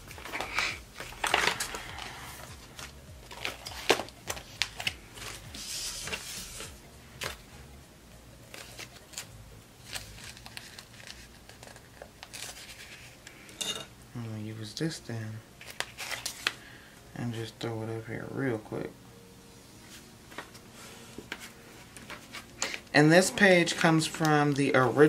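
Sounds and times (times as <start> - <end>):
paper rustling: 0.0 - 7.4, 8.5 - 13.5, 15.6 - 16.7, 19.9 - 25.0.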